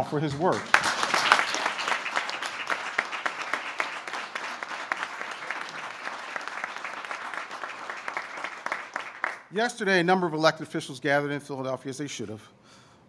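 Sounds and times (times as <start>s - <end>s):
group clapping: 0.0s - 9.5s.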